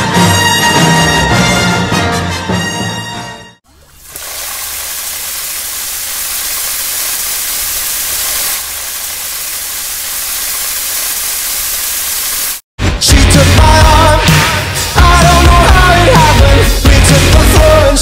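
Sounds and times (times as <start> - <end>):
loud rushing hiss: 4.1 - 12.6.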